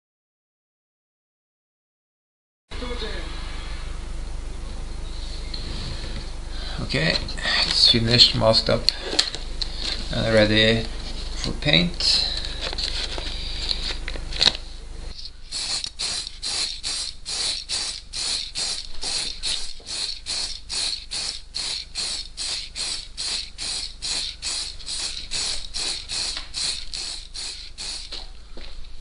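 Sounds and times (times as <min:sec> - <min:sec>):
spray hiss: 0:15.5 - 0:28.2
spray can ball rattling: 0:15.5 - 0:28.3.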